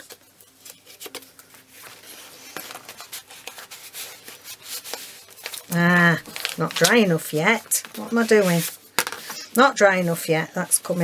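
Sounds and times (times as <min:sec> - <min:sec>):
paper rustling: 0:00.0 - 0:11.0.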